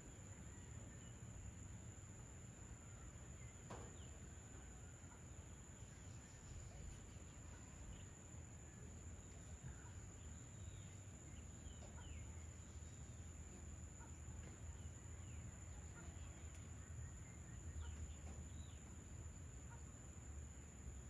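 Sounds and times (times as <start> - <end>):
bird chirps: 9.2 - 19.0.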